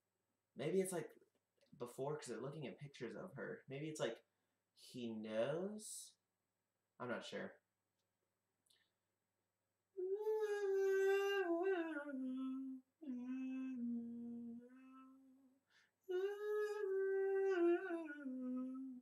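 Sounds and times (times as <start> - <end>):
young man humming: 10.0 - 15.3, 16.1 - 19.0.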